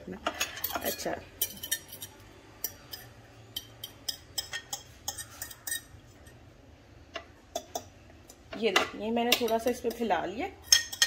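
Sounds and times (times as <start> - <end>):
fork clinking and scraping on plate: 0.3 - 6.4.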